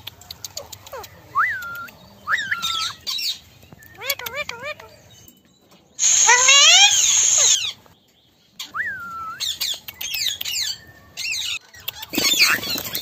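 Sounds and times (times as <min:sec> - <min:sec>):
parakeets calling: 0:06.0 - 0:07.7.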